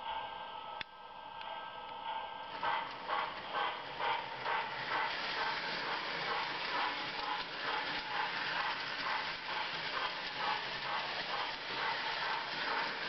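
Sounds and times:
toy train running on track: 2.4 - 13.0
electronic steam chuffs: 2.6 - 13.0.

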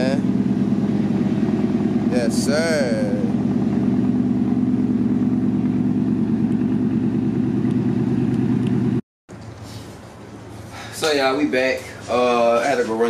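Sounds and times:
truck engine idling: 0.0 - 9.0.

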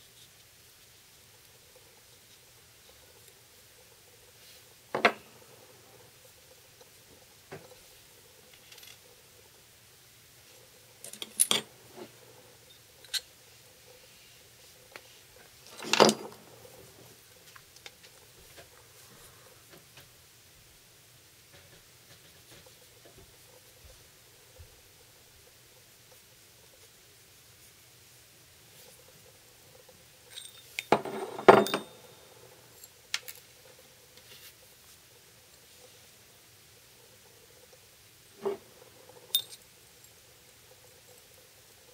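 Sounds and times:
metal tools clinking on wood: 11.0 - 11.7, 15.6 - 16.5, 30.3 - 33.4, 39.2 - 39.6.

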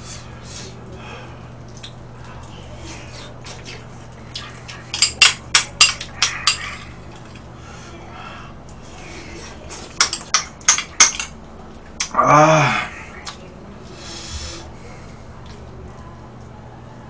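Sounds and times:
person grunting: 12.0 - 13.2.

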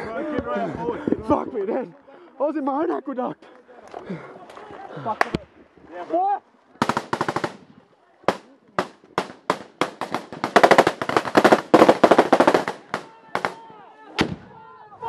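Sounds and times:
automatic gunfire: 6.8 - 7.6, 8.3 - 13.6.

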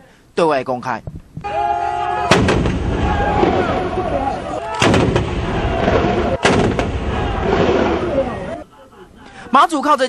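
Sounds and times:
voices: 1.4 - 10.0
rumble of gunfire: 2.3 - 4.1, 4.8 - 8.2
howitzer firing blasts: 2.3 - 8.5.

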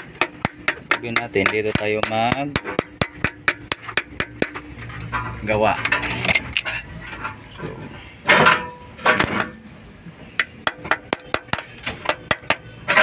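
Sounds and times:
hand tools tapping on metal: 0.0 - 9.4, 10.3 - 13.0.

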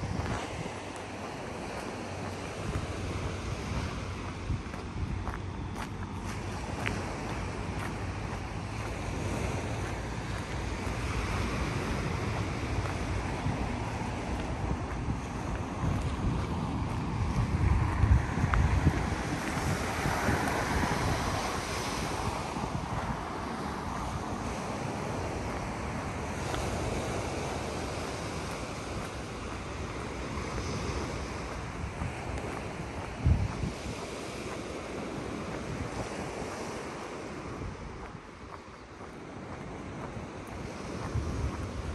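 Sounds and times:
sea surf washing on beach: 0.0 - 41.9
wind on microphone: 0.0 - 41.9.

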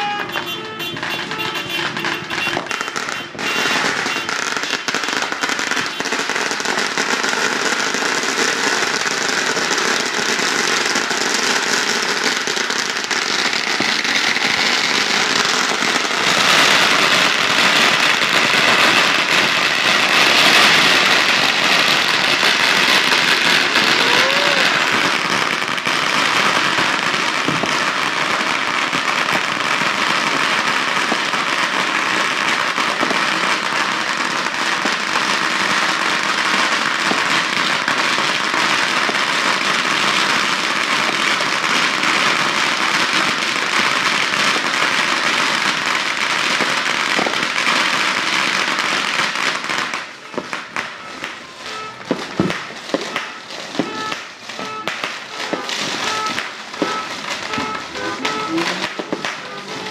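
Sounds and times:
firecrackers crackling: 0.0 - 59.9
aerial firework bursts: 5.3 - 27.9.

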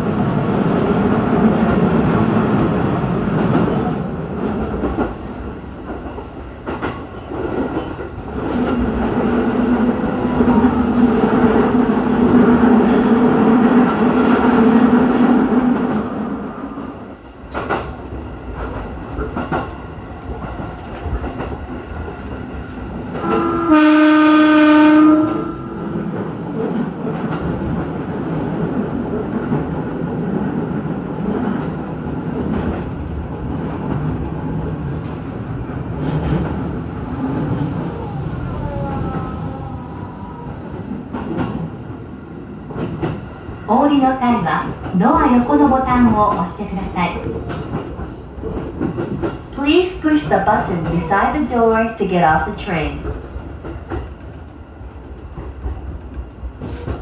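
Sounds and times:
electric train running on track: 0.0 - 57.0
train horn: 23.2 - 25.8.

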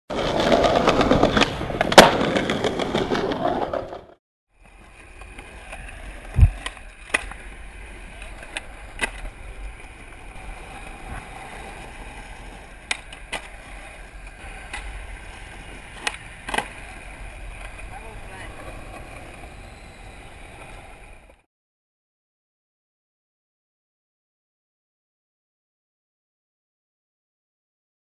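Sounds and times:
skateboard tail clacks: 0.1 - 21.4
skateboard wheels rolling on pavement: 0.1 - 21.5
sharp crack: 1.3 - 2.9, 6.4 - 7.4.

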